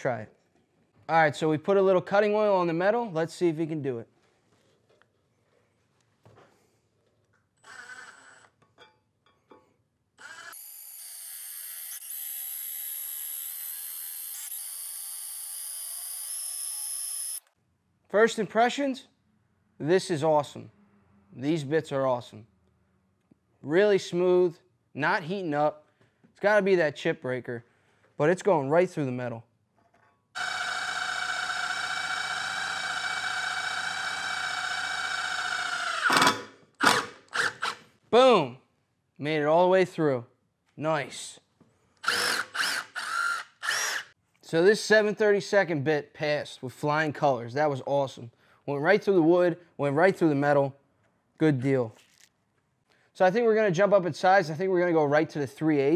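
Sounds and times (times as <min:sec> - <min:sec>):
impact driver drilling into steel: 0:07.6 - 0:08.5, 0:10.2 - 0:17.5, 0:30.4 - 0:37.8, 0:42.0 - 0:44.1.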